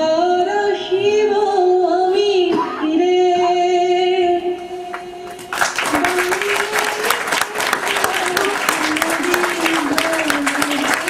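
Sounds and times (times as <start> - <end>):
audience applause: 5.5 - 11.0.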